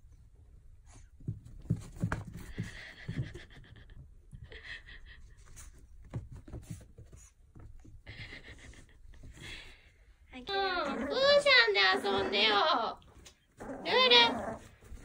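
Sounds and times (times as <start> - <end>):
paws thumping on carpet: 1.2 - 3.8, 5.9 - 8.1
puppy panting: 2.1 - 5.8.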